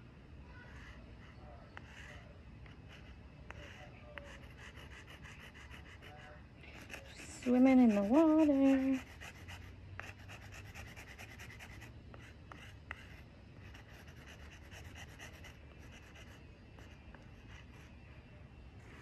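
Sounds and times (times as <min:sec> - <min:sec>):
chalk scraping on concrete: 0:03.0 - 0:11.9.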